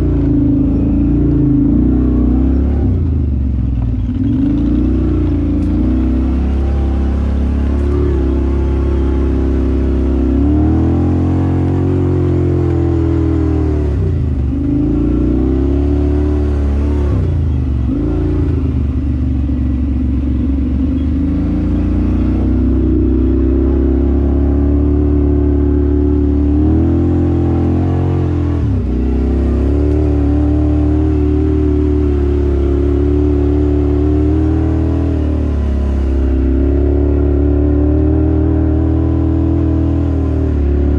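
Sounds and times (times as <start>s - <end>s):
off-road vehicle engine revving: 0.0s - 40.9s.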